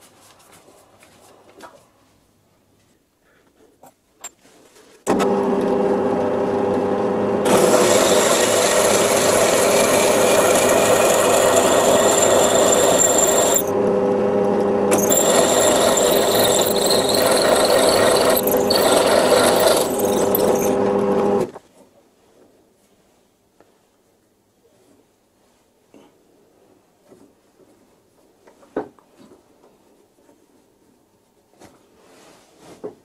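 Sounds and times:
drill press motor hum: 5.1 - 21.5
drill cutting steel: 7.4 - 13.8, 14.9 - 21.4.

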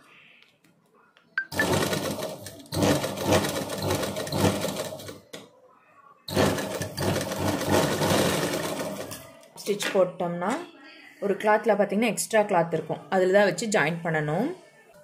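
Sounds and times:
sewing machine stitching: 1.5 - 5.3, 6.3 - 9.2.

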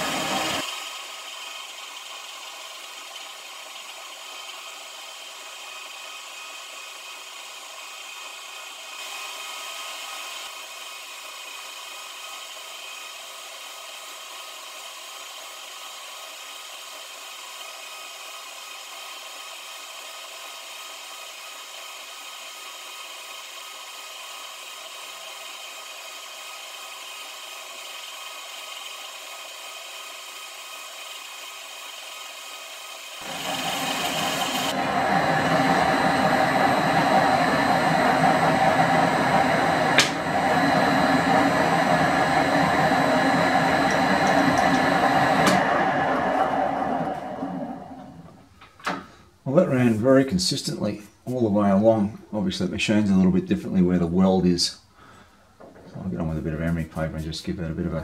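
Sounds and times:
metal lathe whining: 0.0 - 7.5, 33.0 - 48.4
hiss of turning cut: 0.0 - 51.4.

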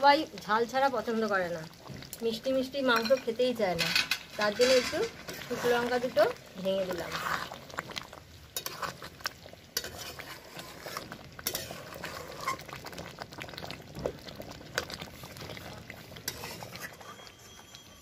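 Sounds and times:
metal spoon scraping a pan: 2.8 - 7.6, 8.5 - 12.8, 16.2 - 18.0.

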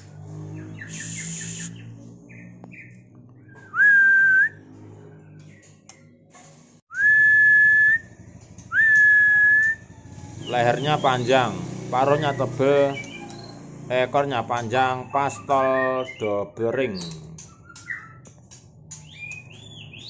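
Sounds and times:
bird whistling long notes: 0.8 - 1.9, 3.5 - 4.6, 6.9 - 11.3.

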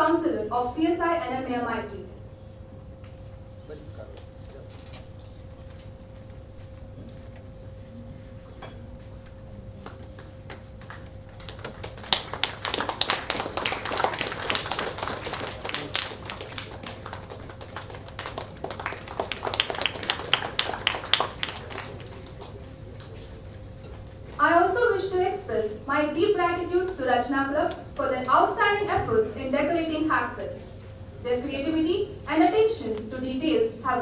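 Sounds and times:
faint steady hum: 0.0 - 34.0
people clapping: 9.8 - 23.3.

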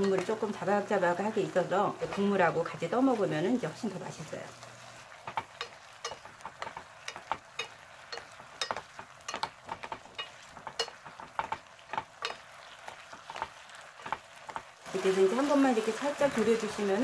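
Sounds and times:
sauce sizzling: 0.0 - 17.0
wooden spatulas tapping a pot: 5.2 - 14.7.

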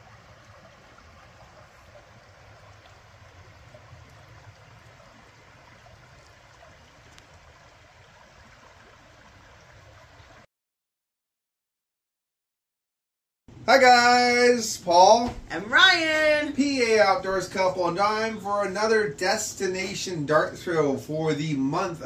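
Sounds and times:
creek flowing over rocks: 0.0 - 10.5.

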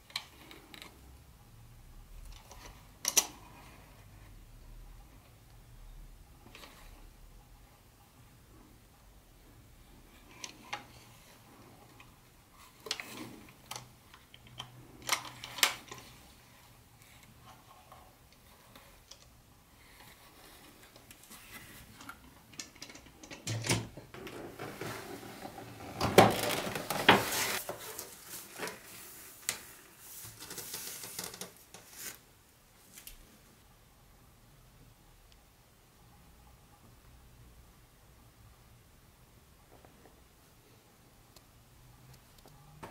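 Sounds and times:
plastic packaging rustling: 24.2 - 32.2.

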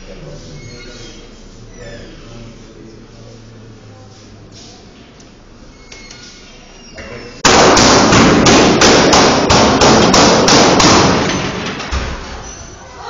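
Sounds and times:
gunshots in a room: 7.4 - 12.4.

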